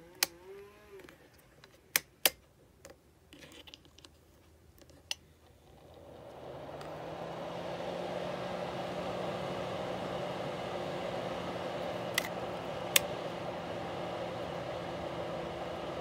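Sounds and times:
heater fan whirring: 5.6s - 16.0s.

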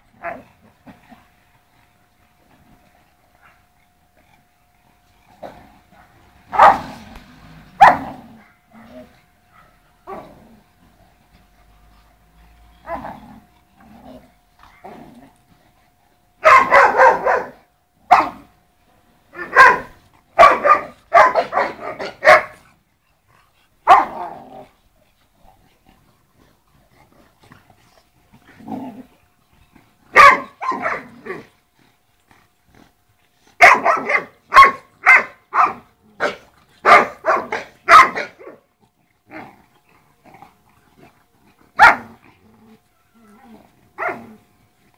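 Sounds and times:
dogs growling: 0.0s - 44.9s
dogs barking: 5.6s - 8.7s, 9.4s - 10.2s, 16.4s - 18.5s, 19.4s - 22.6s, 23.8s - 24.4s, 30.1s - 31.4s, 33.6s - 38.6s, 41.7s - 42.2s, 44.0s - 44.4s.

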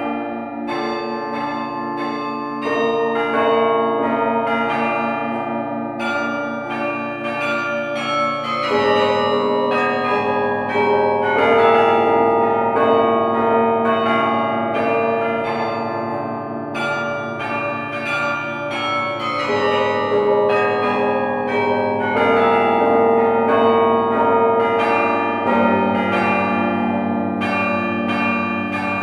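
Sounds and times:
carillon bells playing melody: 16.8s - 29.0s.

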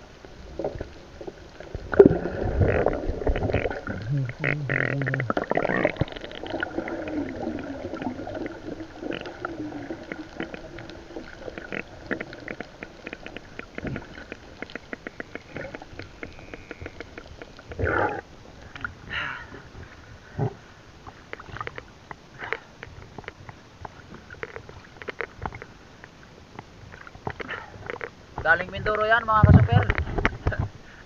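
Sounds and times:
water splash: 0.0s - 19.0s
underwater bubbles gurgling: 0.0s - 28.5s
dense crackle of clicks: 0.0s - 31.0s.

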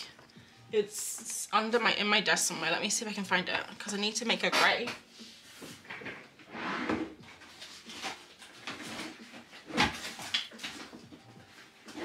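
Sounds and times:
things shuffling and clattering: 4.6s - 12.0s.

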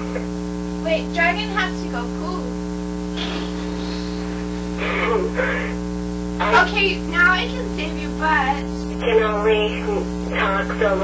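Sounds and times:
electrical mains hum: 0.0s - 11.0s
person speaking: 6.4s - 11.0s.

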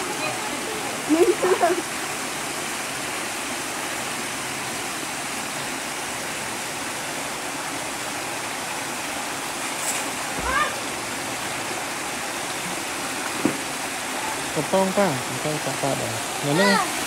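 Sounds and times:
water rushing through sluice: 0.0s - 17.0s.

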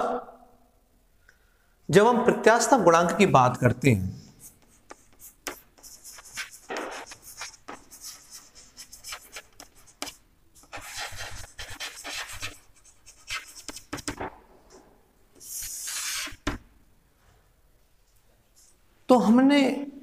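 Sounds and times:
chalk scratching on blackboard: 4.4s - 14.3s, 15.4s - 16.6s.

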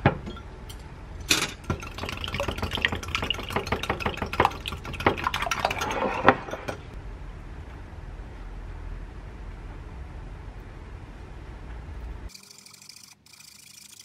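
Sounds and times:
egg sloshing: 1.6s - 7.0s.

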